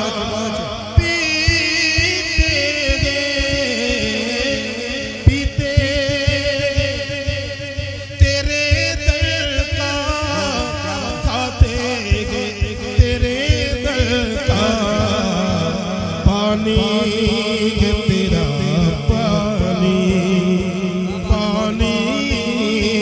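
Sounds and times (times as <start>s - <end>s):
man chanting into microphone: 0.0s - 23.0s
short low thumps: 0.5s - 17.2s.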